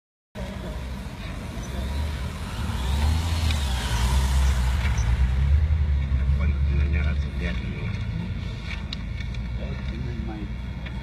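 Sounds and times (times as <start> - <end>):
motorcycles riding past: 0.5 - 7.5.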